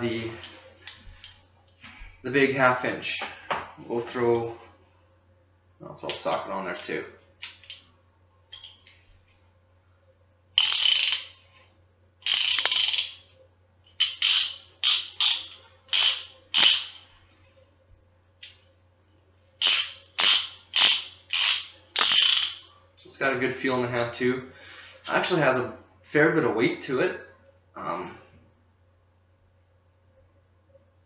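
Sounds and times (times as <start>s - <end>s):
ratchet clicking: 10.6s - 11.3s, 12.2s - 13.2s, 14.0s - 17.0s, 19.6s - 22.6s.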